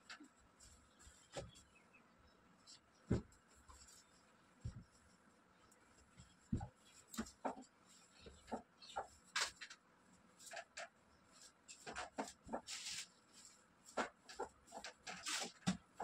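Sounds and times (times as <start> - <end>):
bedding rustling: 3.0 - 5.1.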